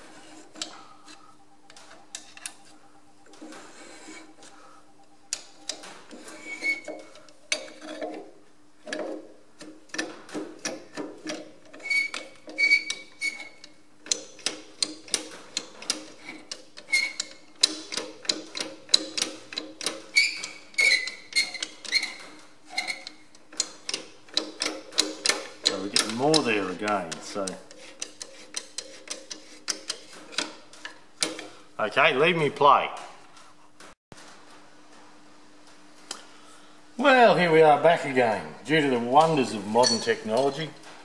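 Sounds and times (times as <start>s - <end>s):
spanner clicking on metal: 8.9s - 22.2s, 22.8s - 31.5s.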